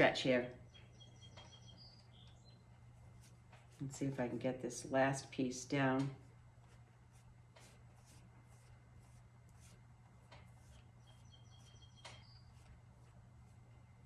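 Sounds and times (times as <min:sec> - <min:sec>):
songbirds chirping: 0:00.0 - 0:06.4, 0:10.1 - 0:14.0
low steady hum: 0:00.0 - 0:14.0
brush strokes on paper: 0:03.0 - 0:05.5, 0:06.2 - 0:11.8, 0:12.4 - 0:13.7.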